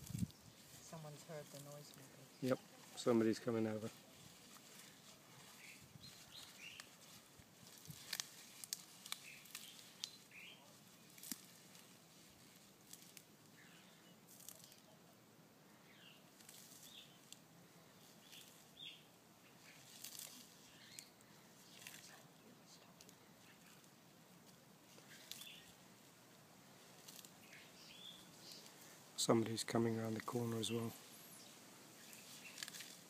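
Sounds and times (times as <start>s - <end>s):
tortoise chewing leaves: 0.0s - 33.0s
faint bird chirps: 27.4s - 29.0s.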